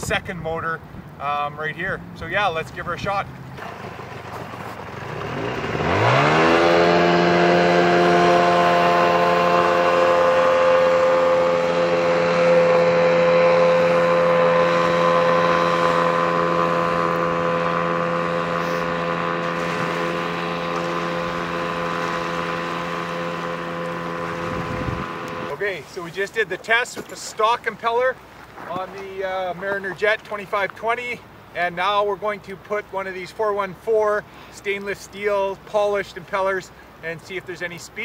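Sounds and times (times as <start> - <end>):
outboard engine accelerating: 1.9 - 30.5.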